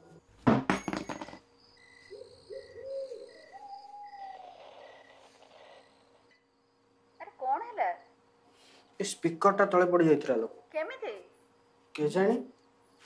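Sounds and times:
phone clattering on hard floor: 0:00.5 - 0:01.4
low owl-like hoots: 0:02.0 - 0:06.3.

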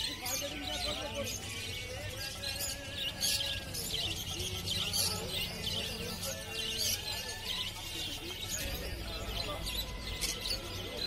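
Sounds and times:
caged birds chirping: 0:00.0 - 0:11.0.

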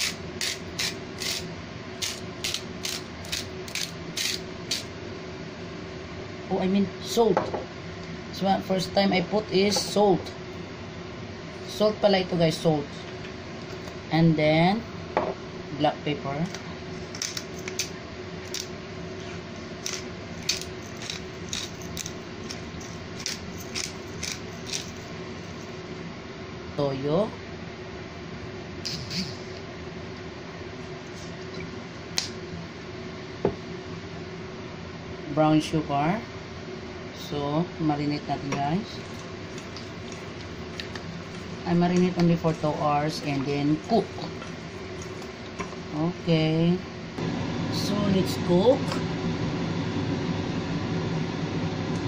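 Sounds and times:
salt grinder grinding: 0:00.0 - 0:04.9, 0:19.8 - 0:25.6.

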